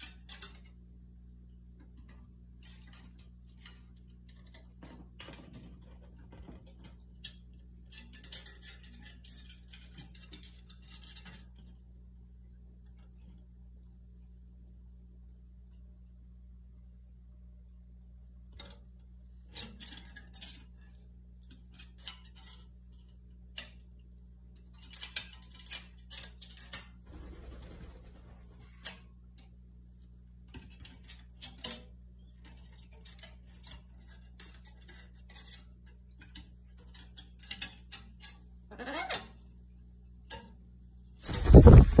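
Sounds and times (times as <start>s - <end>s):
soft rustle: 41.2s - 42.0s.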